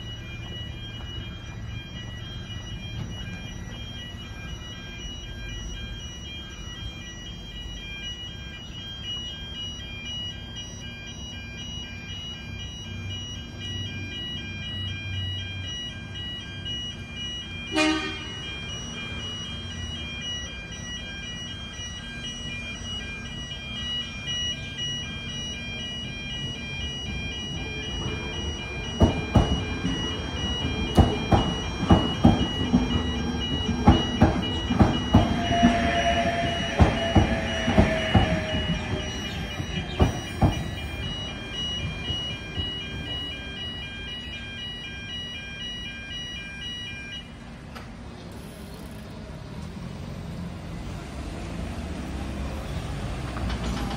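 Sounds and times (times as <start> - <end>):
level crossing warning bells: 0.0 - 48.2, 48.8 - 53.9
train wheel squeal: 27.1 - 43.8
train wheels clacking over rail joints: 28.9 - 43.1, 53.2 - 53.9.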